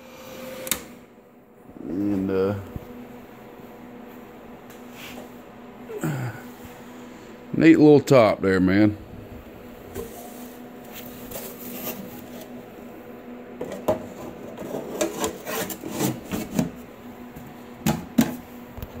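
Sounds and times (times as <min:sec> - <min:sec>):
faint steady hum: 0:00.0 - 0:19.0
amplifier cover rubbing and scraping: 0:09.9 - 0:12.6, 0:13.6 - 0:16.8.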